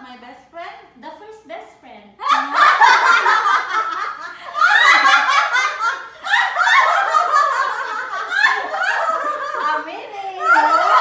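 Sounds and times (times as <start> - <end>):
women laughing: 2.2 - 11.0.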